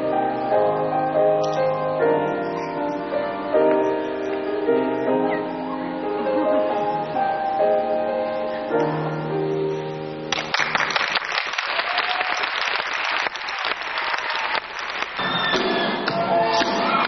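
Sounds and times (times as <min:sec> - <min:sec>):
music with long held notes: 0:00.0 - 0:11.0
audience applause: 0:10.3 - 0:16.0.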